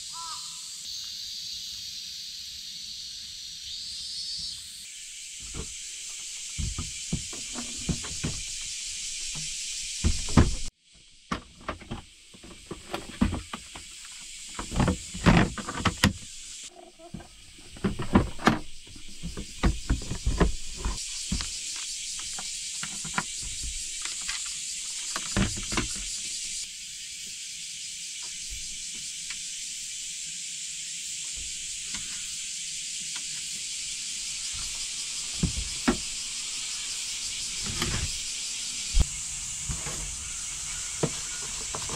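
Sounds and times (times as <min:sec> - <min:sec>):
steady high hiss: 0:00.0 - 0:41.9
camping gear clicks and clunks: 0:06.5 - 0:08.6, 0:11.3 - 0:26.1.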